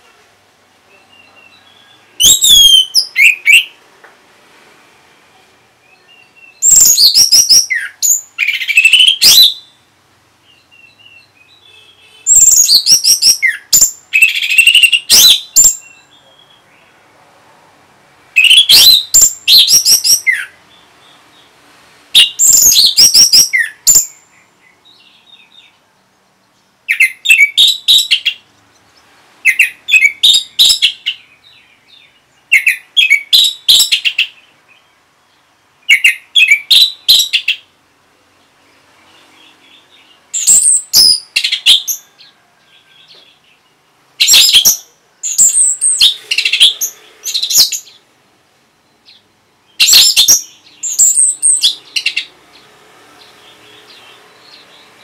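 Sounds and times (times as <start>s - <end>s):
thrush singing whistled phrases: 1.1s - 3.8s, 5.8s - 9.8s, 10.5s - 16.6s, 18.4s - 20.6s, 22.2s - 24.2s, 49.8s - 52.3s.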